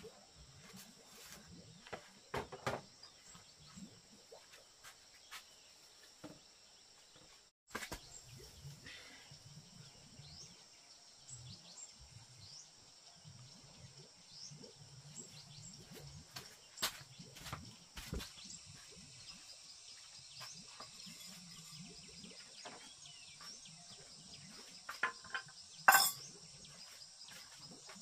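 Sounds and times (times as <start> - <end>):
bird chirps: 14.4 - 28.0.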